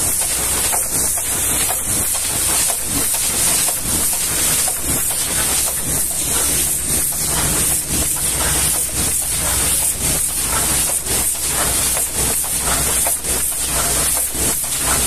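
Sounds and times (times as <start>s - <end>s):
pressure washer jet hissing: 0.0s - 15.0s.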